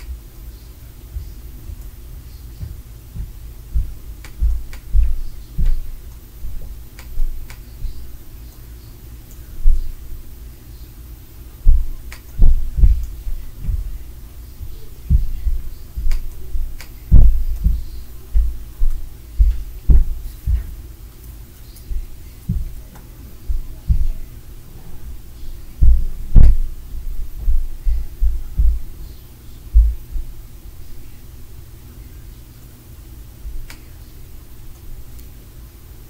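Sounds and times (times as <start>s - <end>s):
low steady hum: 0.0s - 36.0s
heavy footsteps through floor: 1.1s - 8.2s, 11.6s - 20.9s, 21.8s - 29.1s, 29.7s - 30.4s.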